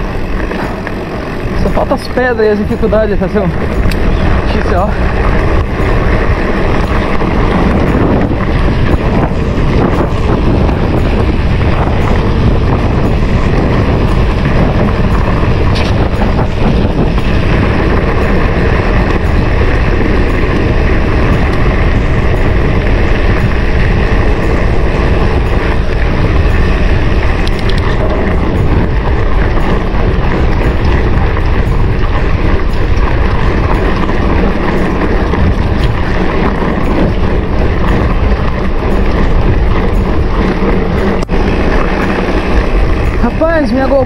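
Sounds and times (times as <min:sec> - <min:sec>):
bike rattling and clicking: 0:00.0 - 0:44.0
wind rushing over microphone: 0:00.0 - 0:44.0.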